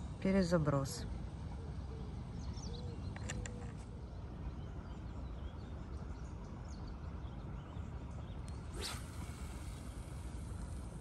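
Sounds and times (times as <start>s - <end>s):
low outdoor rumble: 0.0s - 11.0s
fishing rod cast swish: 8.5s - 10.6s.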